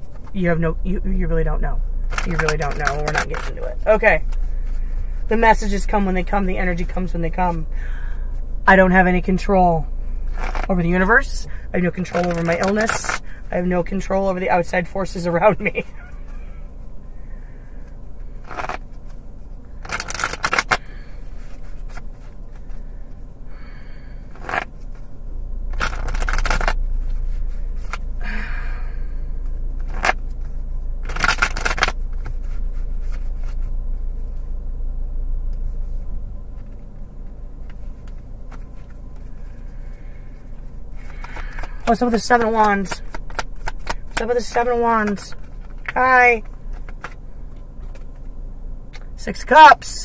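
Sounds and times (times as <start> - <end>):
low steady rumble: 0.0 - 50.0
cards being shuffled: 2.1 - 7.0, 10.3 - 10.8, 11.8 - 14.0, 18.3 - 19.2, 19.8 - 22.8, 24.2 - 25.1, 25.7 - 28.4, 29.5 - 34.5, 35.6 - 40.0, 41.0 - 48.3.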